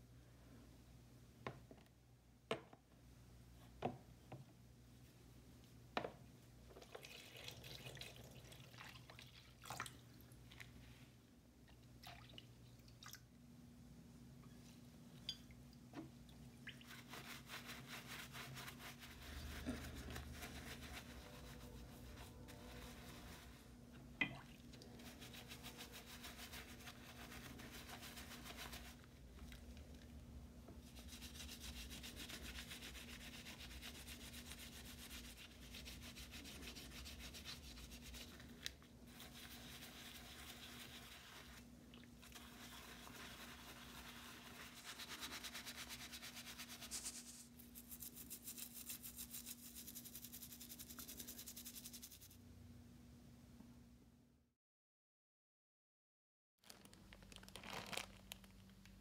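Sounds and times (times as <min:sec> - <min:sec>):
brush scrubbing wet metal: 0:16.7 - 0:23.8, 0:24.8 - 0:29.1, 0:30.8 - 0:52.4.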